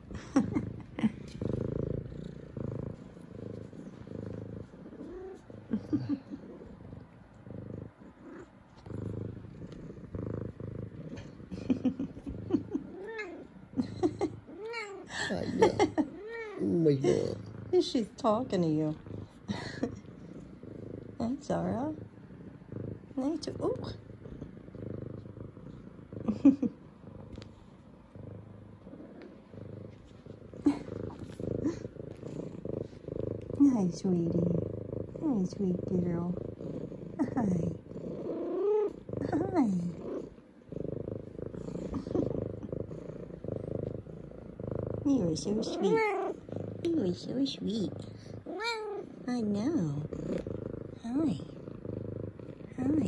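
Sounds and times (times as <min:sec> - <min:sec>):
cat purring: 0:00.0 - 0:53.0
cat meowing: 0:48.5 - 0:49.0.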